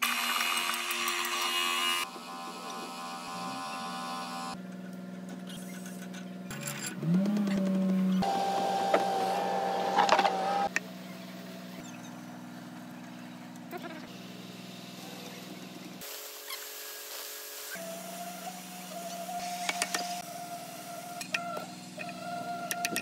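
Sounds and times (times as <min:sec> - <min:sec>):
heavy machinery hum: 0:06.8 - 0:10.7
motor spinning up: 0:06.8 - 0:10.7.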